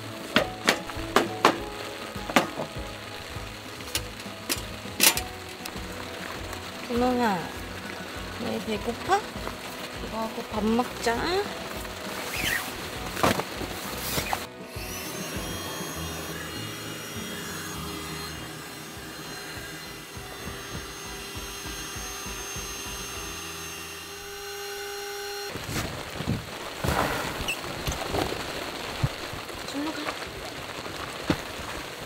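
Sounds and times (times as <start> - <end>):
small electric motor whining: 14.2 - 25.6.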